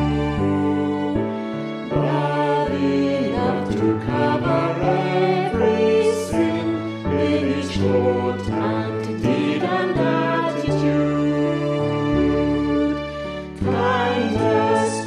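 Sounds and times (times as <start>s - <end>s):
voices singing: 0.0s - 12.7s, 13.6s - 15.0s
hymn with instrumental accompaniment: 0.0s - 15.0s.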